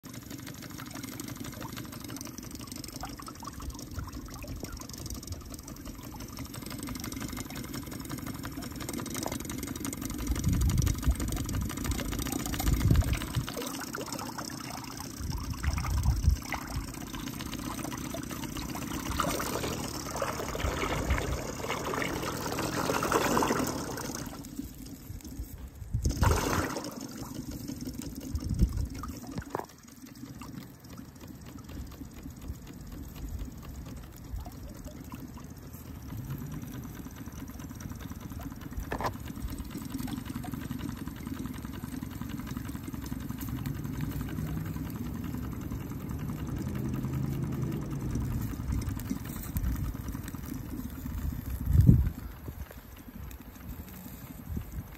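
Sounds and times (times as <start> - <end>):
model steam engine running: 0.0 - 54.9
propeller churning water: 0.0 - 54.9
low rumbles: 10.1 - 29.8, 41.6 - 54.9.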